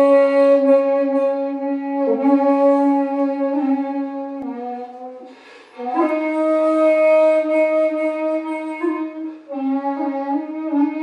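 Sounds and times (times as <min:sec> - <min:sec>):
bamboo flute long held notes: 0:00.0 - 0:11.0
breathy air noise: 0:04.8 - 0:05.9.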